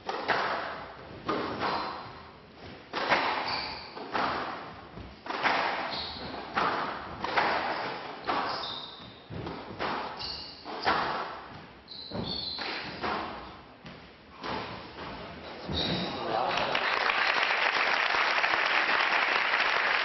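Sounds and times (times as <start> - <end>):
shoes squeaking on court floor: 0.7 - 16.4
rackets striking ball: 2.9 - 14.7.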